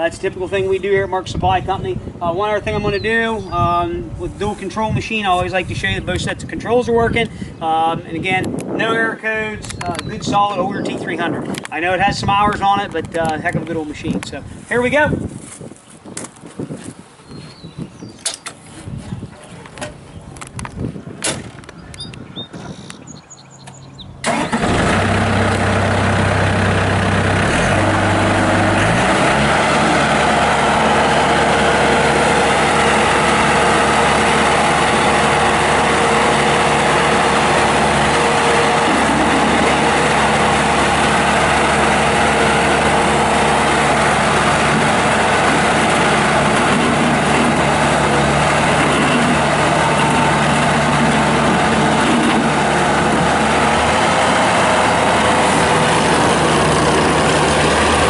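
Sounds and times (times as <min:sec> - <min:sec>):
diesel engine running: 0:24.2 - 0:58.0.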